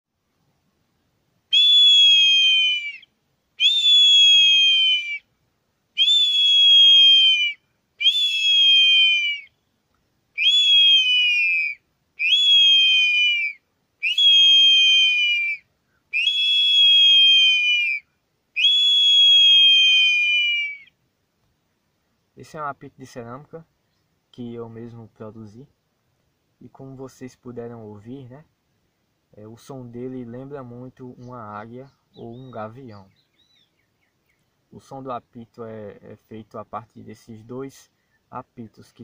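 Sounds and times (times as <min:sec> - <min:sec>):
ceramic whistle blasts: 0:01.5 - 0:03.0, 0:03.6 - 0:05.2, 0:06.0 - 0:09.5, 0:10.4 - 0:15.6, 0:16.2 - 0:18.0, 0:18.6 - 0:20.8.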